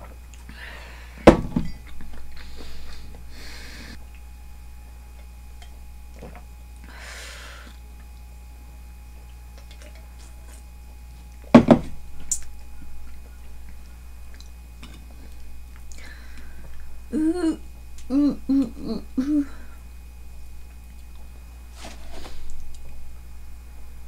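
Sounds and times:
steady low hum: 0.0 - 24.0
can knocked down on table: 11.6 - 12.0.

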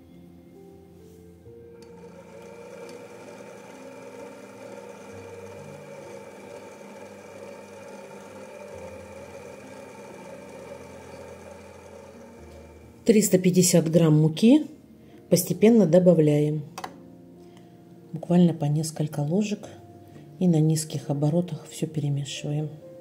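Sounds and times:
stand mixer motor whirring: 1.8 - 13.1.

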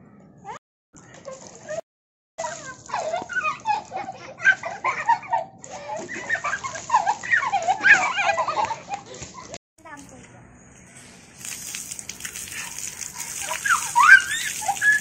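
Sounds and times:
children laughing and squealing: 2.4 - 9.6, 12.5 - 15.0
water pouring: 11.0 - 15.0.

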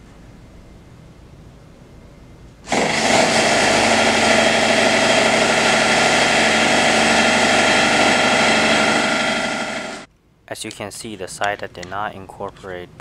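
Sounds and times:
cordless drill motor running: 2.7 - 10.1.

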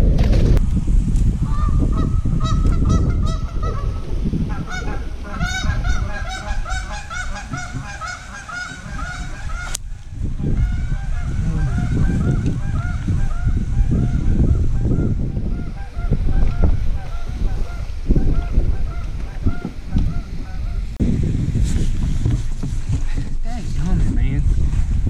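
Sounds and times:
geese honking: 1.5 - 9.8, 10.4 - 21.0
low rumble: 8.8 - 23.3.

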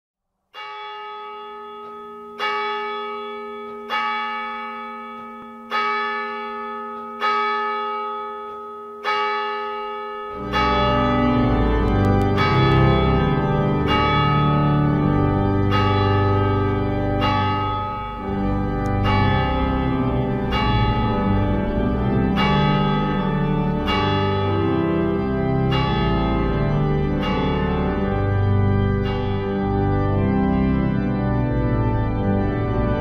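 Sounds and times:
church bell tolling: 0.5 - 33.0
organ music: 8.9 - 33.0.

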